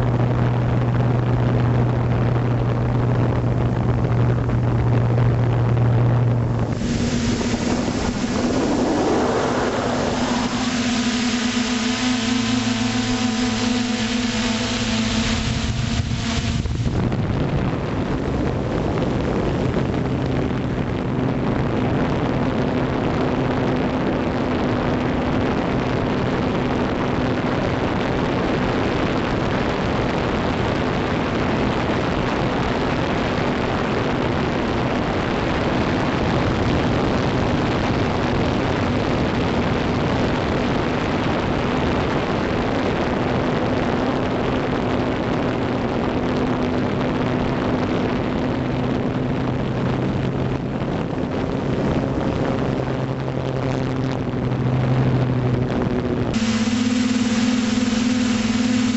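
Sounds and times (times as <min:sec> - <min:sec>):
drone motor hum: 0:00.0 - 0:21.8, 0:52.6 - 0:58.9
propeller wash and wind: 0:00.0 - 0:58.9.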